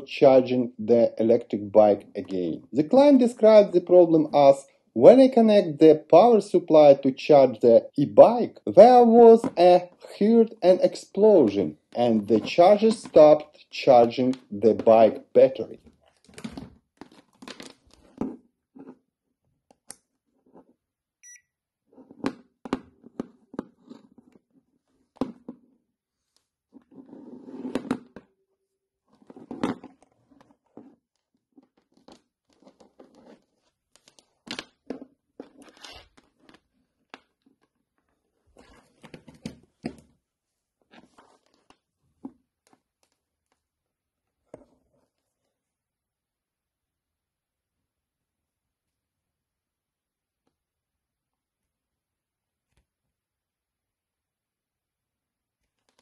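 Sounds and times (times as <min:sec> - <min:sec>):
short high beep: 0:21.2 - 0:21.5.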